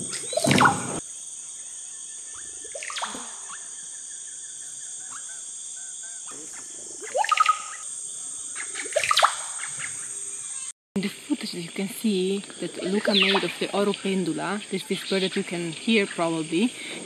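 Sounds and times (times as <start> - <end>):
bird calling sweeping notes: 0.0 - 1.0, 2.3 - 4.0, 4.6 - 7.9, 8.6 - 10.7
insects hissing: 0.0 - 17.0.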